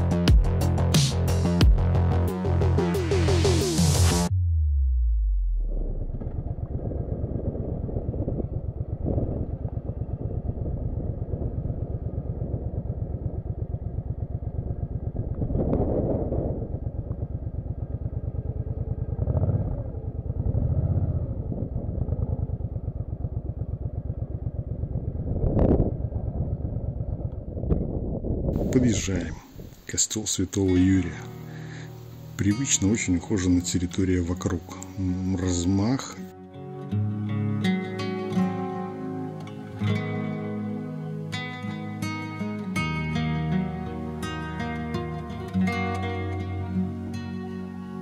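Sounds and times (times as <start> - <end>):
motorcycle engine running: 6.0 - 28.2.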